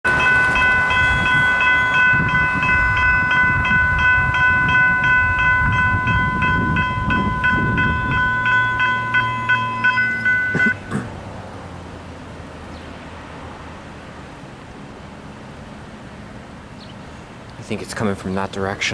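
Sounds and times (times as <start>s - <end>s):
railroad crossing bell ringing: 0.0s - 10.9s.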